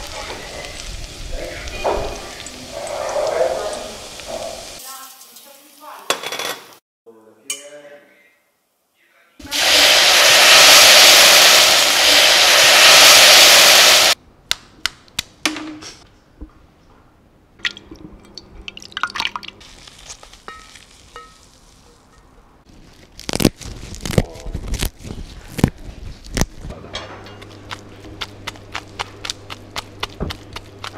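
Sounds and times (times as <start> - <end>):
hot pan sizzling: 0.0 - 6.1, 9.4 - 14.2
hands squelching food in bowl: 27.4 - 30.9.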